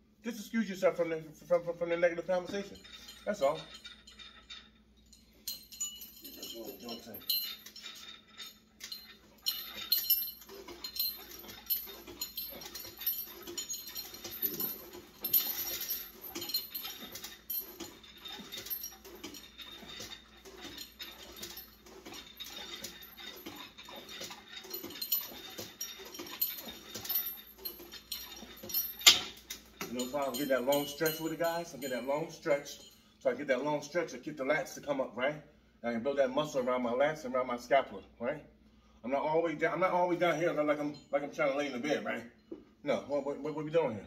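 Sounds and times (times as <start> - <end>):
weight stack clinking and rattling: 2.0 - 33.0.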